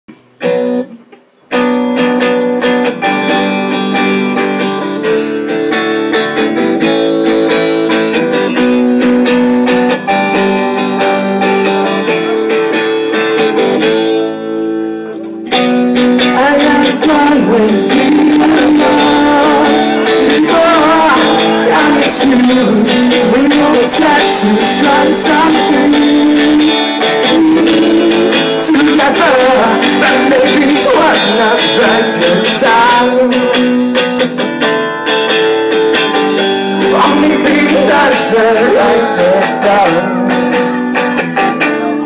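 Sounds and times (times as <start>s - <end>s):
electric guitar chords: 0.1s - 42.0s
man singing over band: 16.3s - 33.6s, 36.8s - 40.8s.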